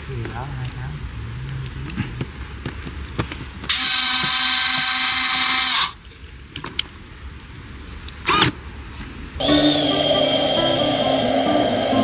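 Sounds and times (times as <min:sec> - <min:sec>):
background music: 0:09.4 - 0:12.0
landing gear motor whirring: 0:09.4 - 0:12.0.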